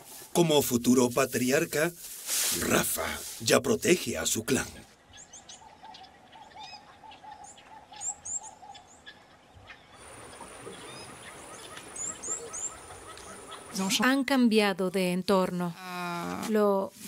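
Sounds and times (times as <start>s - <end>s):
birds chirping: 3.8s - 15.9s
rapid pulsing bird call: 5.0s - 14.1s.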